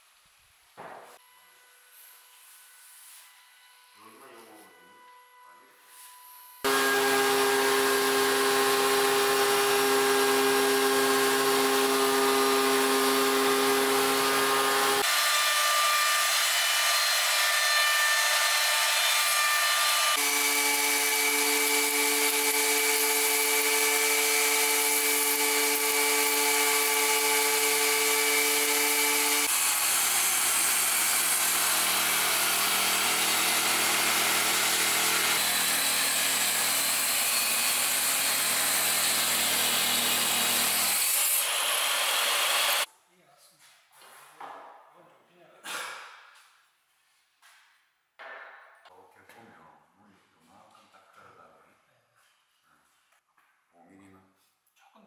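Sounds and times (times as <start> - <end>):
power tool machine whine: 6.4 - 42.9
table saw cutting wood: 6.6 - 42.9.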